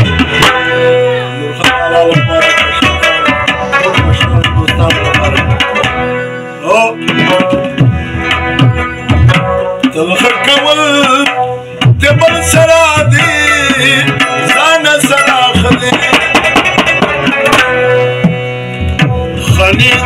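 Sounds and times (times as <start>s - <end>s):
man singing: 0.0s - 6.0s, 6.6s - 7.6s, 9.8s - 17.0s, 19.3s - 20.0s
harmonium chords and melody: 0.0s - 20.0s
tabla drumming: 0.0s - 20.0s.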